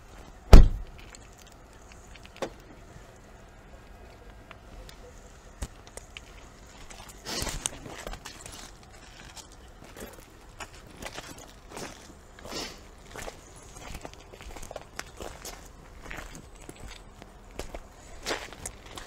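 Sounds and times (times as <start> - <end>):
car door slamming: 0.5 - 0.9.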